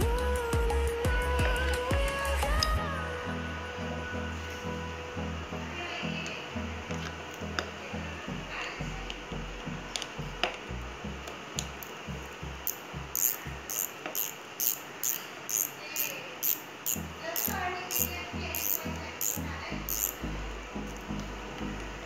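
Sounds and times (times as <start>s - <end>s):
music with beat and bass line: 0.0s - 5.5s.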